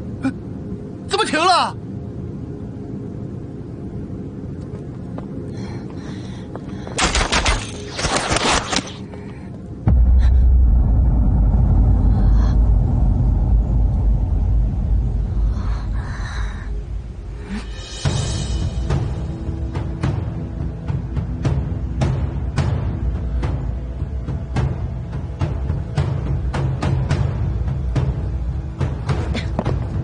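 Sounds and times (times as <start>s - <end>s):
sharp cracks: 6.9s - 9.1s
loud deep rumble: 9.7s - 22.0s.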